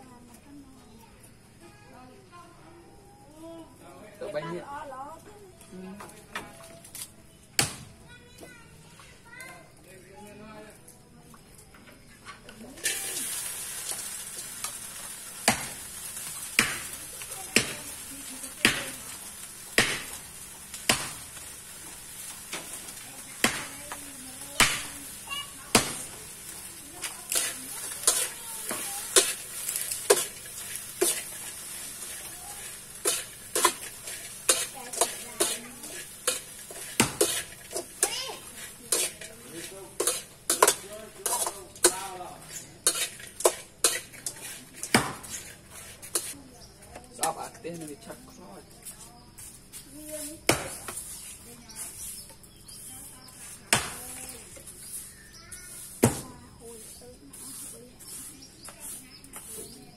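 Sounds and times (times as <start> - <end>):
faint sizzle in a wok: 0.0 - 59.9
sharp pops: 15.4 - 18.0, 18.6 - 24.0, 24.6 - 26.3, 36.2 - 38.3
metal spatula scraping a wok: 26.0 - 46.4, 56.8 - 59.8.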